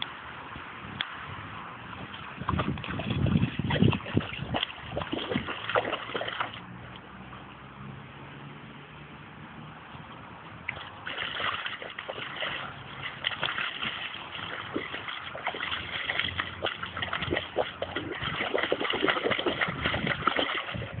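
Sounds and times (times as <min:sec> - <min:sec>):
dog splashing in a puddle: 0:01.9 - 0:06.7, 0:10.7 - 0:21.0.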